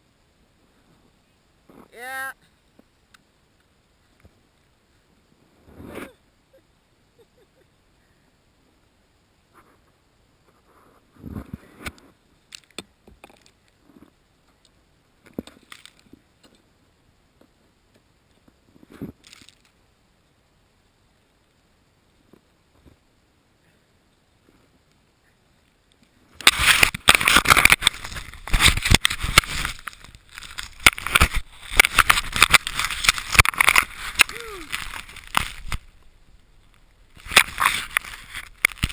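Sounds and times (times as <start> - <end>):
quiet hiss: 0.0 - 38.9
faint scrapes and knocks: 9.5 - 14.6, 26.4 - 38.9.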